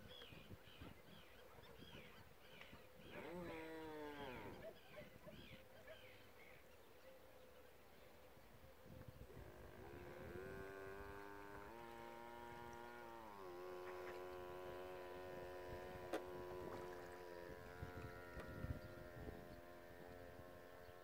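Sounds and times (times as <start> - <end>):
model ship motor whining: 3.0 - 4.7, 9.2 - 21.0.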